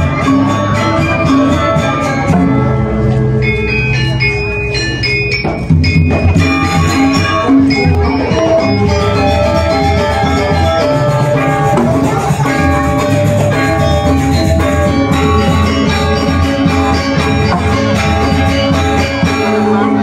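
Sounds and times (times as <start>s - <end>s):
gamelan playing: 0.0s - 20.0s.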